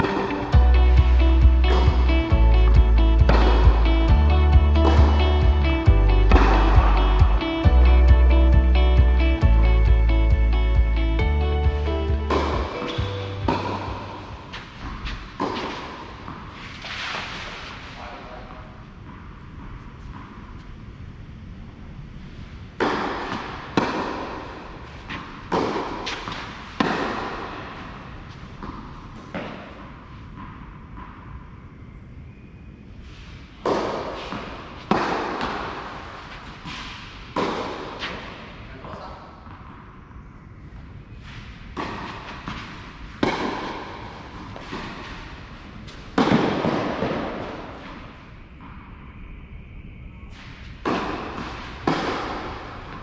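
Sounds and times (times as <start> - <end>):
tennis racket hitting ball: 0.0 - 9.6, 11.0 - 17.9, 22.8 - 31.2, 33.6 - 38.6, 41.7 - 48.1, 50.8 - 53.0
tennis ball bouncing: 0.0 - 17.6, 19.0 - 20.8, 22.8 - 31.4, 33.6 - 38.6, 41.7 - 48.8, 50.8 - 53.0.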